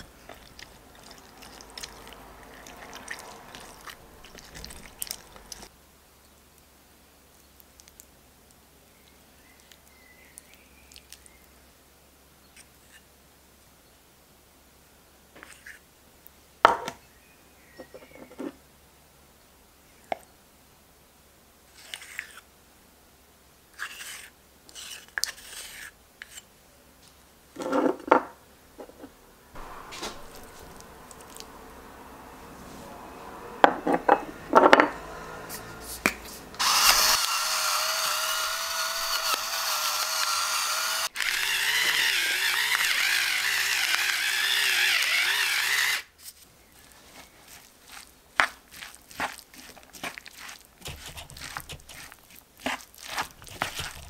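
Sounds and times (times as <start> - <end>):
wooden spoon scraping wooden bowl: 0.0 - 5.7, 23.8 - 26.4, 28.8 - 31.6, 46.2 - 54.0
electric pepper mill grinding: 36.6 - 46.1, 50.4 - 52.2, 53.0 - 54.0.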